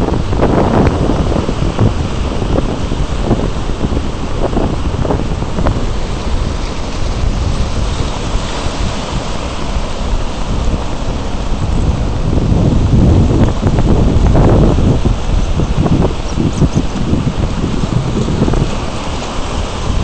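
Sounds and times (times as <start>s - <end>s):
breaking surf: 0.0s - 20.0s
wind buffeting microphone: 0.0s - 20.0s.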